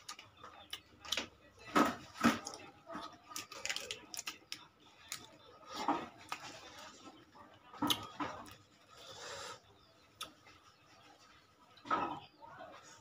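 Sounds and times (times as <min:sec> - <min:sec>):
lettuce crinkling and tearing: 0:02.2 - 0:07.0.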